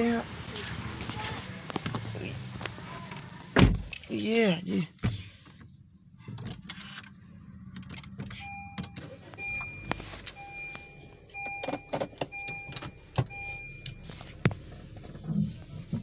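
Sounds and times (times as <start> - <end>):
car engine idling: 7.2 - 16.0
car warning chime beeping: 8.3 - 14.4.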